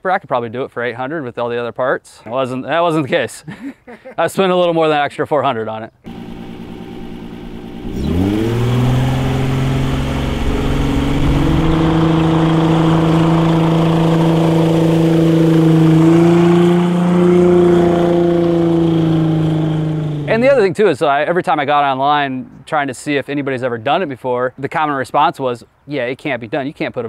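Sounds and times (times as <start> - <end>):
boat engine revving: 6.1 - 20.6.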